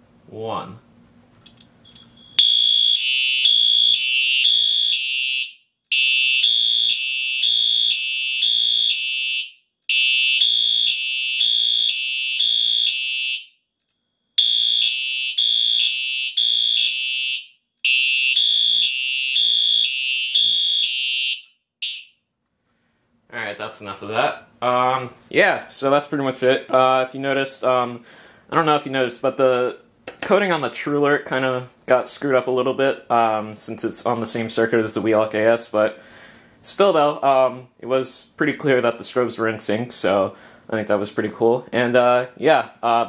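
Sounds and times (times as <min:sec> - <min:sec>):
fire alarm horns pulsing: 0:02.4 - 0:13.6, 0:14.4 - 0:22.2.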